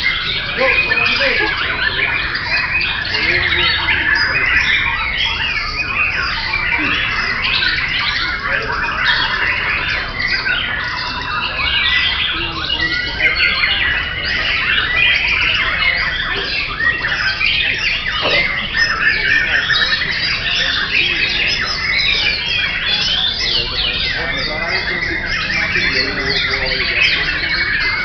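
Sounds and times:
many songbirds singing: 0.0 - 28.0.

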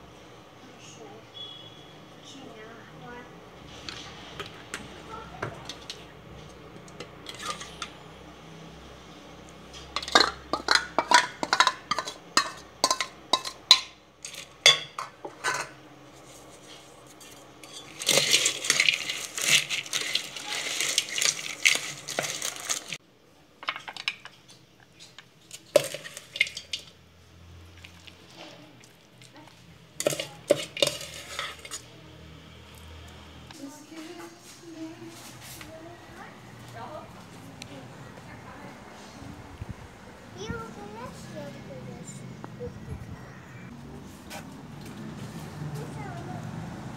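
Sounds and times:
rustling scrape of salad: 7.2 - 7.9, 15.4 - 23.0, 30.0 - 31.9, 34.1 - 35.8
ladle clinking on steel bowl: 9.9 - 15.8, 30.0 - 31.8.

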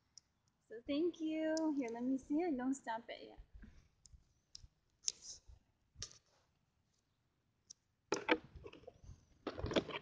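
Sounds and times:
phone handling noise: 8.1 - 8.9.

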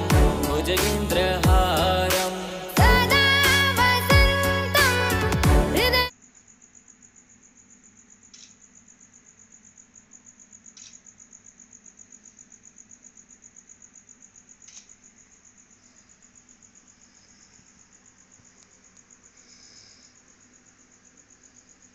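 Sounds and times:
high-pitched insect chirping: 0.0 - 21.9
soft clicks: 10.7 - 11.0, 14.6 - 15.0.

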